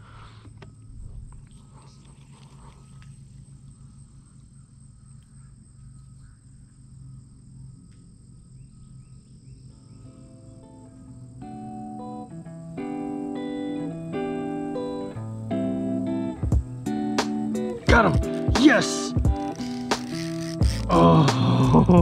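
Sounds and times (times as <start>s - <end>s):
low steady hum: 0.0s - 11.3s
insects trilling: 0.0s - 22.0s
faint clicks and rustles: 0.3s - 4.5s
plucked guitar music: 10.1s - 22.0s.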